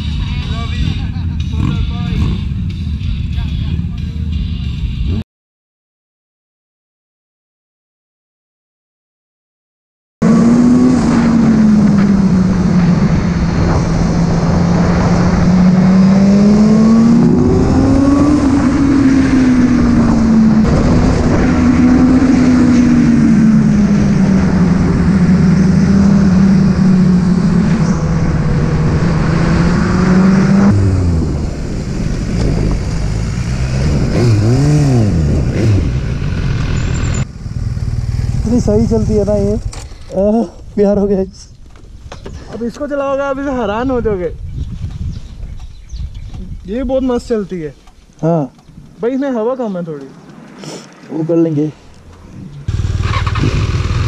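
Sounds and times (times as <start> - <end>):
motorcycle engine revving: 0.0 - 3.2, 10.2 - 40.4, 52.1 - 54.0
motorcycle engine riding: 0.0 - 5.2, 10.2 - 54.0.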